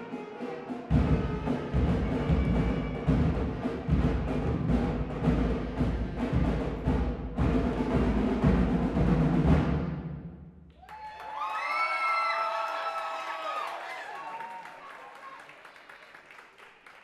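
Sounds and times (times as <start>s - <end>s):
concert band playing: 0.0s - 9.7s
drum beat: 0.9s - 10.3s
audience cheering: 10.7s - 17.0s.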